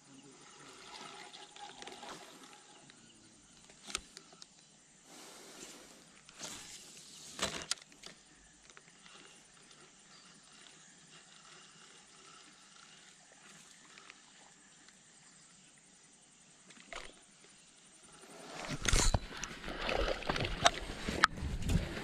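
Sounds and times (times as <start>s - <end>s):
faint outdoor background hiss: 0.0s - 22.0s
brief rustle: 5.2s - 9.8s, 18.4s - 22.0s.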